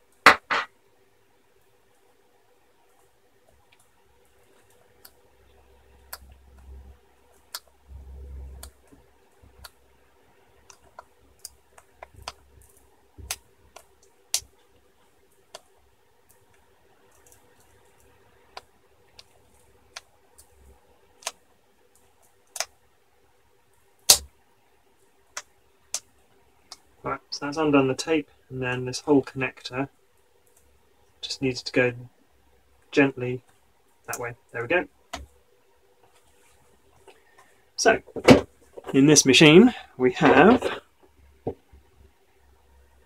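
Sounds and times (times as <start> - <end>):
small clicks and ticks of fingers: 7.3 - 7.8, 10.6 - 22.8.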